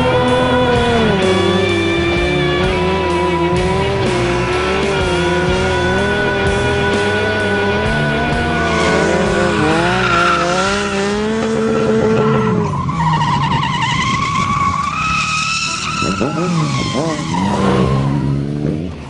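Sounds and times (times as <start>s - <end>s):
car engine revving hard: 0.0s - 14.9s, 15.6s - 19.0s
tyres squealing: 8.0s - 18.2s.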